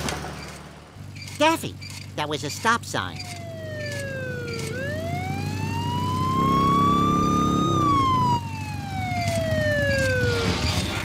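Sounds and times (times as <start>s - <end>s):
motorcycle siren wailing: 3.0s - 11.0s.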